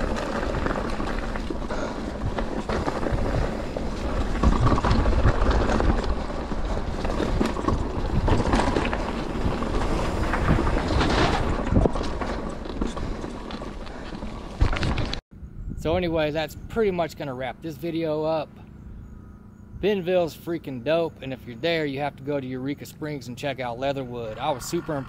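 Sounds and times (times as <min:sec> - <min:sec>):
bike rattling: 0:00.0 - 0:15.2
tyres rumbling on dirt: 0:00.0 - 0:15.2, 0:19.8 - 0:25.0
wind rushing over microphone: 0:00.0 - 0:16.9.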